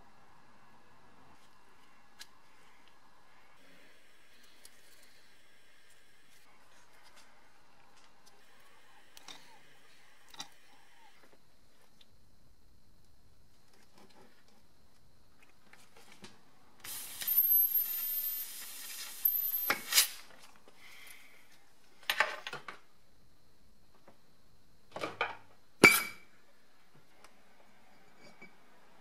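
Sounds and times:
compressed air hissing: 16.8s - 21.4s.

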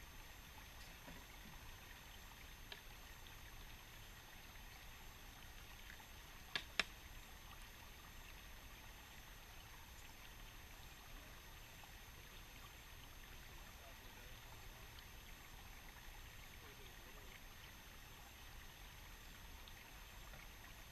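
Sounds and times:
creek trickling: 0.0s - 20.9s
sharp clicks: 6.5s - 6.9s.

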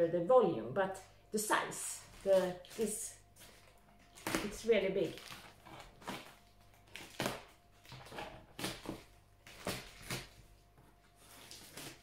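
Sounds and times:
scissors scraping packing tape: 11.2s - 12.0s.

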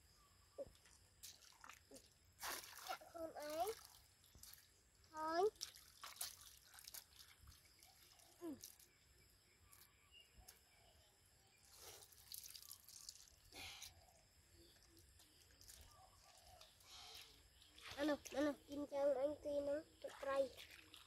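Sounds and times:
water dripping: 0.6s - 9.0s, 11.9s - 13.5s, 20.0s - 21.0s
small splashes in muddy water: 0.8s - 9.0s, 11.7s - 13.6s, 19.9s - 21.0s.

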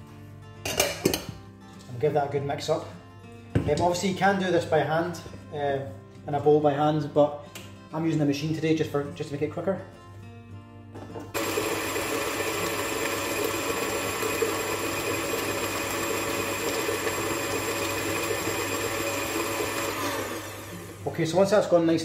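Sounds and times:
electric stand mixer whining: 11.4s - 21.2s.

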